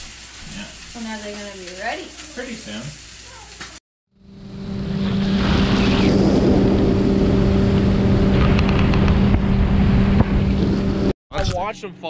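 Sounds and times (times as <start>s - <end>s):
motorboat engine droning: 4.1s - 11.1s
wind on microphone: 5.0s - 11.5s.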